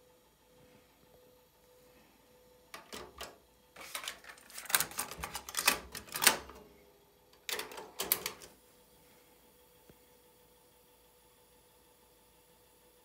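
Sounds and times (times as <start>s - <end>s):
cassette deck mechanical clicks: 2.8s - 6.6s, 7.4s - 8.6s.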